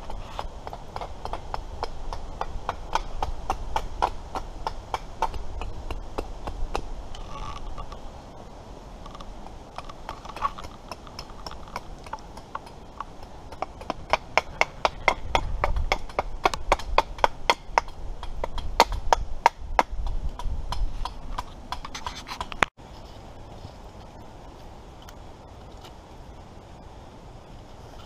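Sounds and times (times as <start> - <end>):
hatchet chopping wood: 0.2 - 6.9, 9.8 - 22.5.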